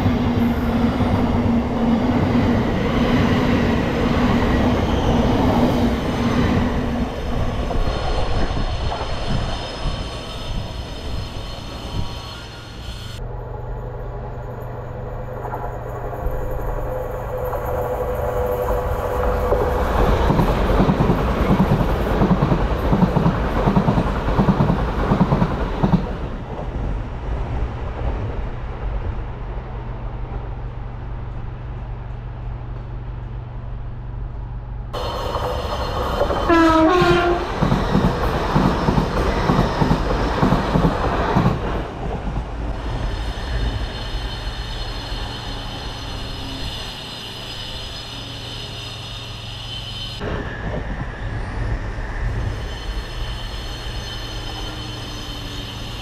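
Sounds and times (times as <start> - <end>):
diesel locomotive passing: 0.0 - 56.0
train horn blast: 36.4 - 37.6.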